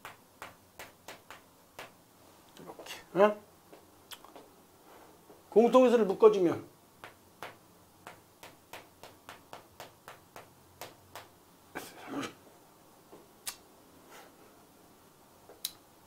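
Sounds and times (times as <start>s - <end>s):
chalk tapping on chalkboard: 0.0s - 2.0s, 7.0s - 11.3s.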